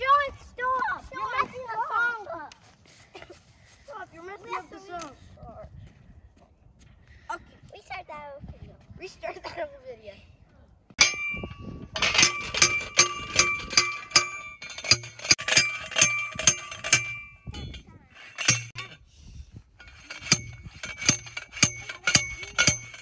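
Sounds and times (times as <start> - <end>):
post driver clanging on metal: 11.0 - 19.0, 19.8 - 23.0.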